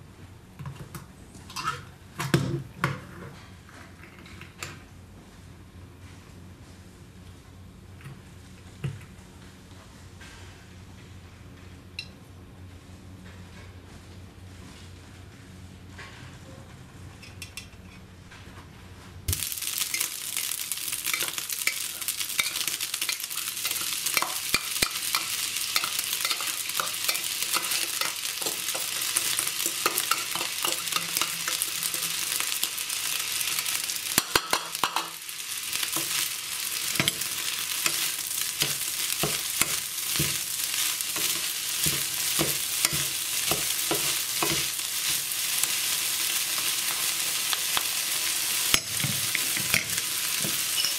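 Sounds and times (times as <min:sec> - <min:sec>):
food sizzling in a pan: 0:19.3 - 0:50.9
wooden spoon scraping a pan: 0:21.1 - 0:32.6.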